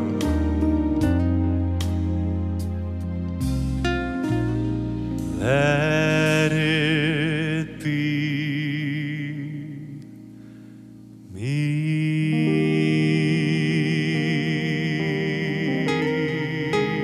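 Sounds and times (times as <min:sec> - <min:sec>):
man singing slow ballad: 0:00.0 - 0:01.9, 0:05.2 - 0:17.0
soft instrumental backing: 0:00.0 - 0:17.0.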